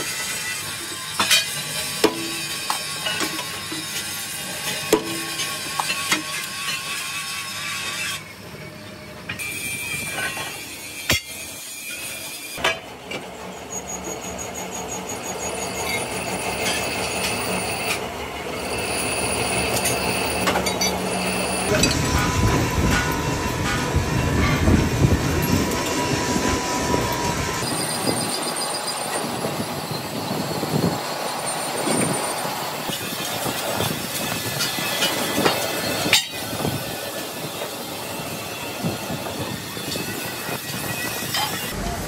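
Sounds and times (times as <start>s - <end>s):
harsh machine noise: 0.0s - 42.0s
hammer striking metal: 4.9s - 6.3s
metallic squealing: 13.3s - 36.6s, 39.0s - 42.0s.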